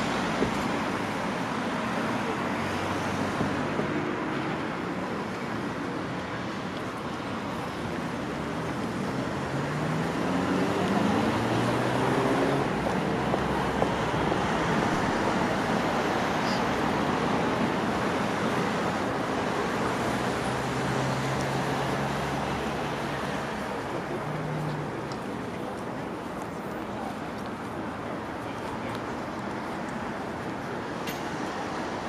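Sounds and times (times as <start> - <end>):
street traffic passing: 0.0 - 32.0
vehicle engine pulling away: 8.5 - 13.8.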